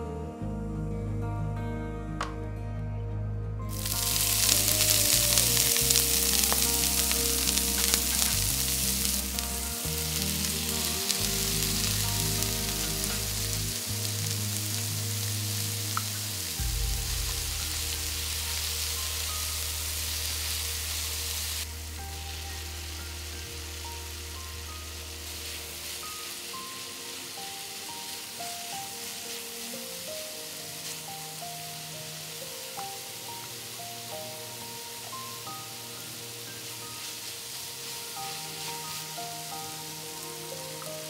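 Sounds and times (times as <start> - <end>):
food sizzling in a frying pan: 3.7 - 41.0.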